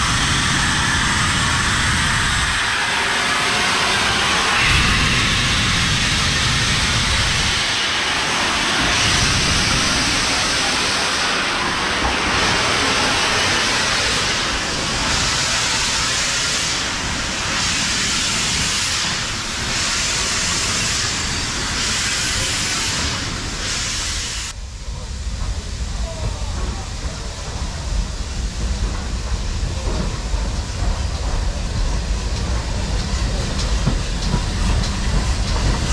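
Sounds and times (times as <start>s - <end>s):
steam locomotive blowing off steam: 0.0s - 35.9s.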